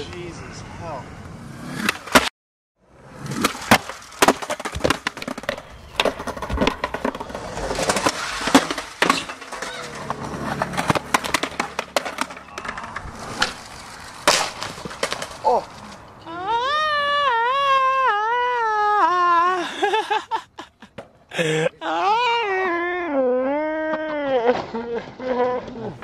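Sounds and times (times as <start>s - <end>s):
skateboard wheels rolling: 3.0s - 16.2s
skateboard clacking and landing: 3.3s - 15.7s.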